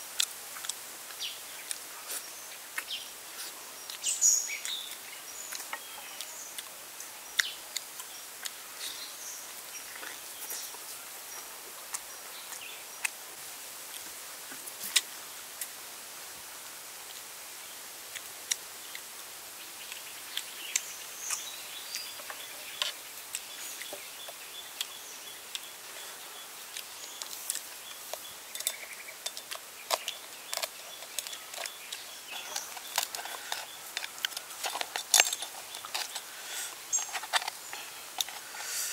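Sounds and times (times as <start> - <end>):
outdoor hiss: 0.0 - 38.9
bird chirps: 19.8 - 34.4
chewing and lip-smacking: 26.7 - 36.4.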